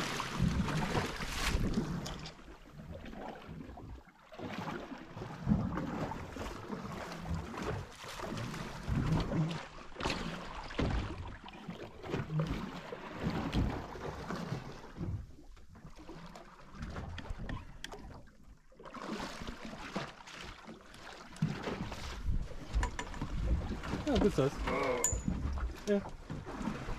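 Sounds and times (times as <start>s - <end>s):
water slapping boat hull: 0.0s - 26.9s
fishing gear knocking and rattling: 22.6s - 25.5s.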